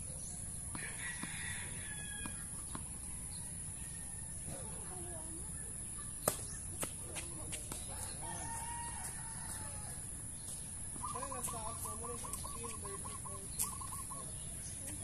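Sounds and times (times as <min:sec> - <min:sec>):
rooster crowing: 0:00.7 - 0:02.5, 0:08.1 - 0:10.1
tennis ball struck by racket: 0:06.2 - 0:07.0.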